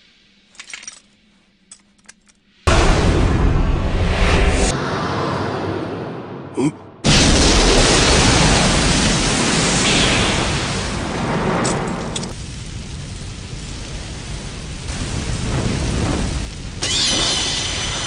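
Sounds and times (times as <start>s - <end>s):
rushing energy blast: 2.7s - 12.1s.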